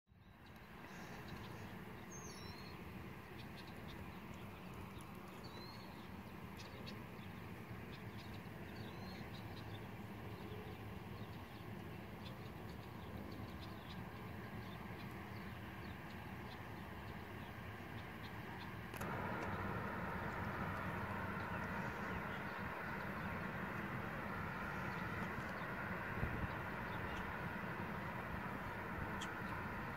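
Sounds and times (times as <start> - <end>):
birds chirping: 0.2 - 29.9
freight train rumble: 7.4 - 29.9.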